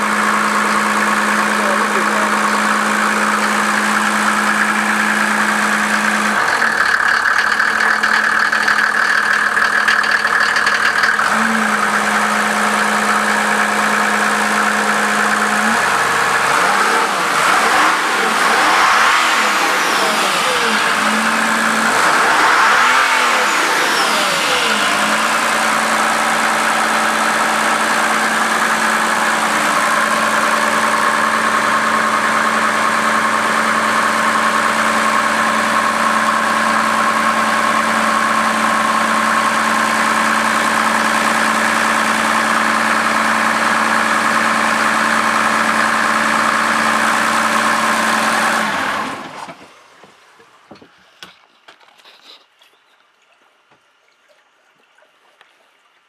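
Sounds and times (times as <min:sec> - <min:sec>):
turbo whine: 0:00.0 - 0:43.8
diesel engine idling and revving: 0:00.0 - 0:51.0.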